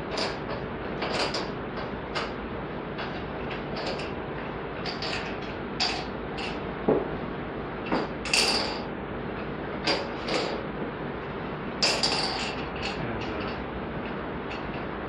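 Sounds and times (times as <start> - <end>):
balls clinking against glasses: 8.0 - 8.8.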